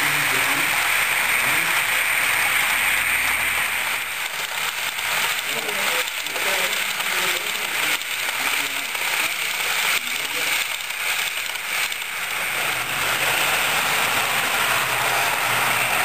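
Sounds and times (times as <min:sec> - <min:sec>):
model train wheels rattling: 0:00.0 - 0:16.0
faint voices murmuring: 0:05.4 - 0:10.7.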